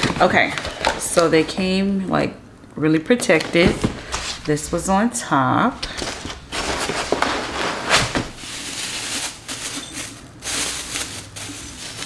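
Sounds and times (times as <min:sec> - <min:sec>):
packing material rustling and crinkling: 0:03.4 - 0:12.0.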